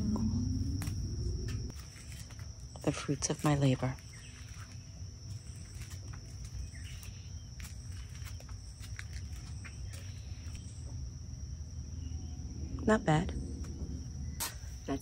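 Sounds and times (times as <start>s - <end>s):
low rumble: 0.0s - 1.9s
high-pitched insect trill: 0.0s - 15.0s.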